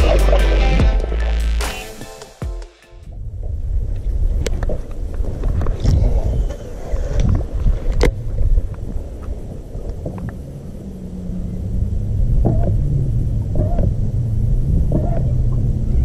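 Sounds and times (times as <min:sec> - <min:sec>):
wind buffeting microphone: 0:03.1 - 0:16.0
steady low hum: 0:05.9 - 0:16.0.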